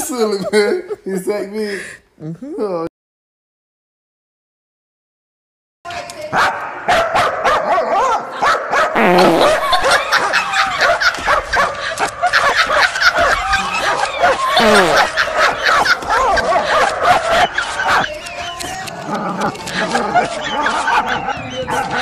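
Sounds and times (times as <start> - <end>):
dog barking and yipping: 6.3 - 9.0, 9.6 - 18.7, 19.4 - 22.0.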